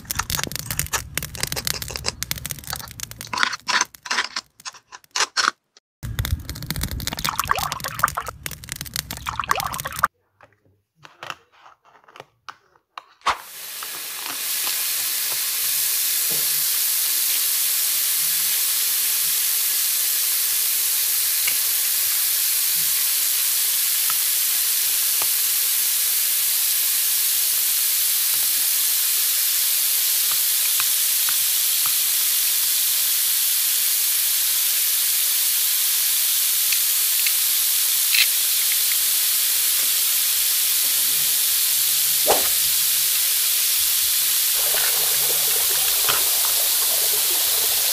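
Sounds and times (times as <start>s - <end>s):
plastic toy food clicks: 0.0s - 7.0s
electronic sizzling sound effect: 13.6s - 47.9s.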